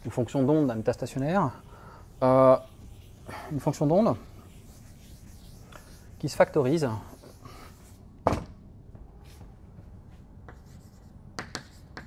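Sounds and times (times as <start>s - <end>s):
chalk scratching on blackboard: 0.0s - 8.0s, 10.5s - 12.0s.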